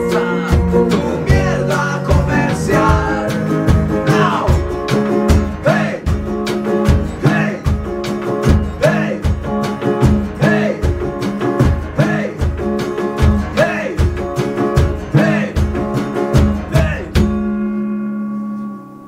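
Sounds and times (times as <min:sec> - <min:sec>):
person singing: 0:00.0 - 0:04.7, 0:05.4 - 0:06.2, 0:07.2 - 0:07.8, 0:08.7 - 0:09.4, 0:10.2 - 0:11.0, 0:11.8 - 0:12.8, 0:13.4 - 0:14.2, 0:15.0 - 0:15.9, 0:16.6 - 0:17.3
drum beat: 0:00.0 - 0:17.6
strummed acoustic guitars: 0:00.0 - 0:19.0.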